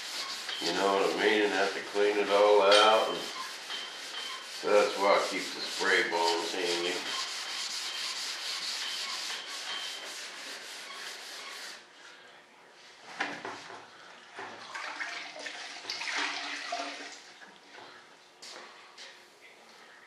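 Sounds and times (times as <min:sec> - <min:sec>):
sandpaper rasping: 0:00.0 - 0:11.8.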